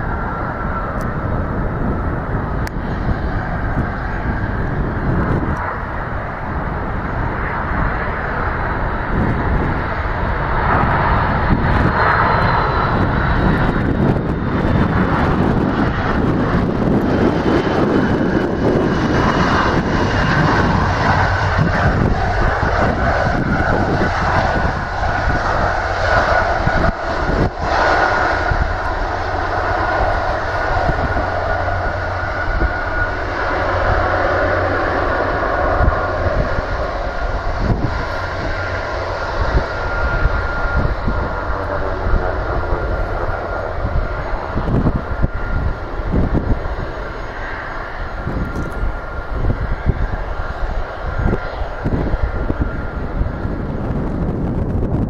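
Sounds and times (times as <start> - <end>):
jet engines running: 0.0 - 55.0
thin whine: 0.0 - 55.0.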